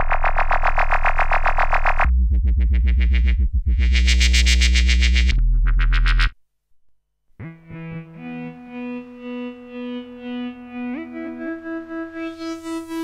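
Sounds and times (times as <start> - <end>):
distorted synthesizer bass: 0.0 - 6.4.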